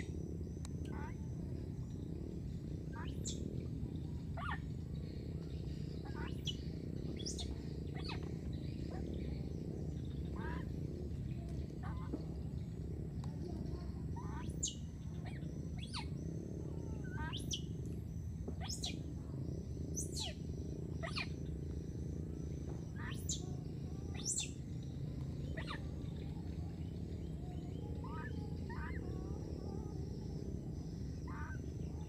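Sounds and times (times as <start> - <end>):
steady low rumble: 0.0 - 32.0
high-pitched chirping calls: 2.9 - 5.2, 5.8 - 10.7, 13.7 - 17.9, 18.5 - 19.1, 19.8 - 21.6, 22.8 - 32.0.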